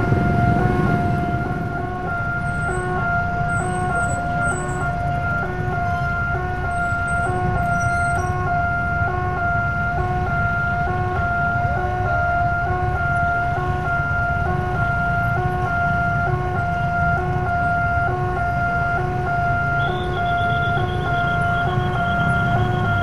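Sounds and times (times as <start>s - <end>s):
motorcycle engines running: 0.0s - 23.0s
electronic two-tone warning chime: 19.6s - 23.0s.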